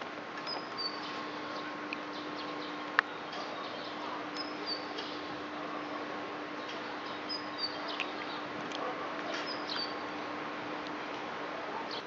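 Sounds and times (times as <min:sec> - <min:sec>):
faint steady hum: 0:00.0 - 0:12.0
outdoor background hiss: 0:00.0 - 0:12.0
small birds chirping: 0:00.4 - 0:08.5, 0:09.3 - 0:10.0.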